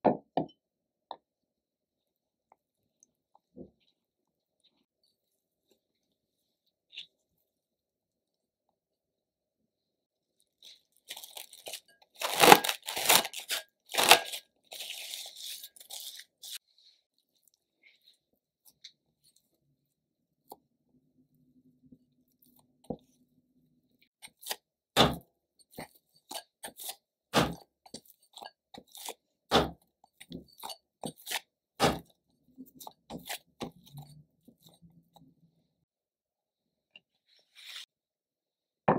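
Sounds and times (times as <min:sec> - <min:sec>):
wet dough squelching and tearing: 0:10.4 - 0:18.8.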